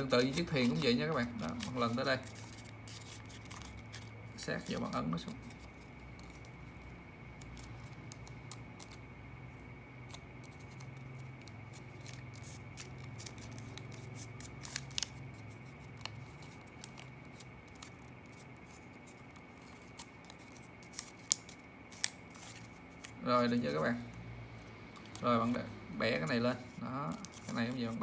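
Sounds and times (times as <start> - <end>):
banknote paper crackling: 0.0 - 24.2, 24.9 - 28.0
faint steady hum: 0.0 - 28.0.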